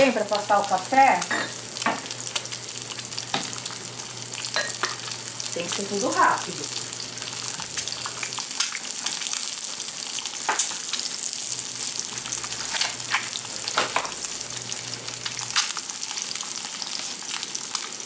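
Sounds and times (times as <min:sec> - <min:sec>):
eggs sizzling in hot oil: 0:00.0 - 0:18.0.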